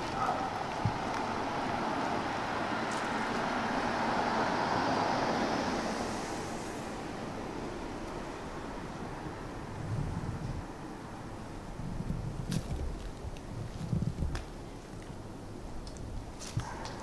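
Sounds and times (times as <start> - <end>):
passing vehicle road noise: 0.0 - 12.4.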